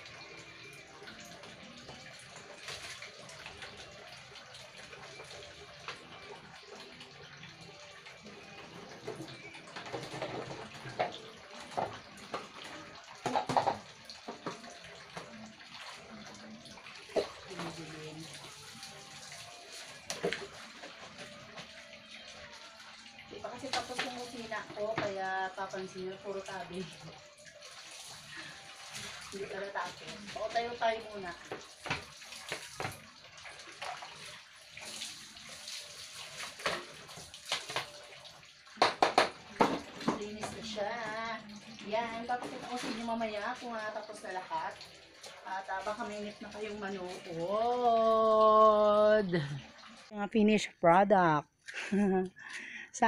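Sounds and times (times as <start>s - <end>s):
water sloshing and splashing: 0.0s - 50.2s
plastic bottles clattering: 9.1s - 12.6s, 13.2s - 14.6s
plastic bottles knocking: 13.2s - 14.6s, 38.8s - 40.6s.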